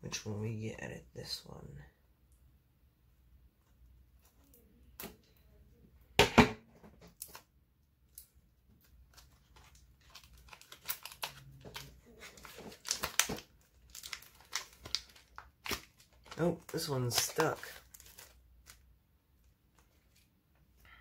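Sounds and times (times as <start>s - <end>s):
packaging crinkling: 8.8s - 18.8s
packaging tearing: 9.1s - 18.8s.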